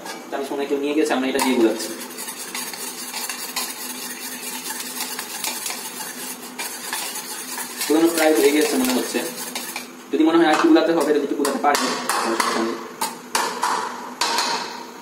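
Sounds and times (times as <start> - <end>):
whisk clinking against ceramic bowl: 1.4 - 9.9.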